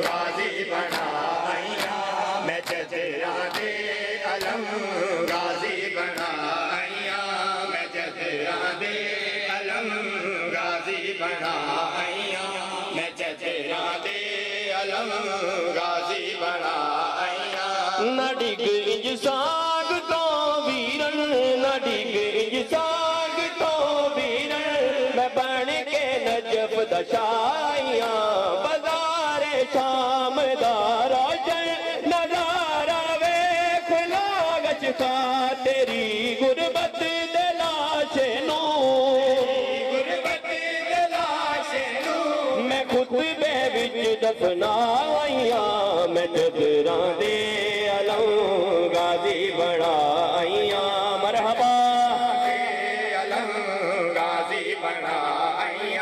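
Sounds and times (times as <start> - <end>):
open-hand chest-beating slaps: 0.0 - 6.4
voices chanting: 0.0 - 18.2.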